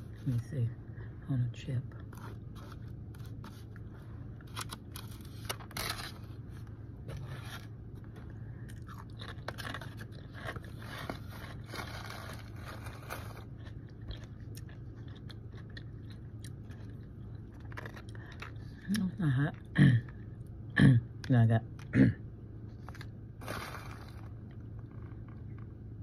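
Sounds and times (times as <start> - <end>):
steady low hum: 0.0 - 26.0
crunching chip: 8.7 - 18.7, 22.8 - 25.4.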